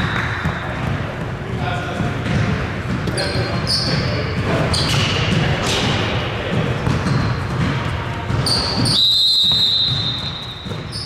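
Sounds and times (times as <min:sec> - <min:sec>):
players' voices: 0:00.0 - 0:09.0
basketball bouncing on court: 0:00.0 - 0:11.0
sneakers squeaking: 0:00.0 - 0:11.0
steady high whistle: 0:08.8 - 0:11.0.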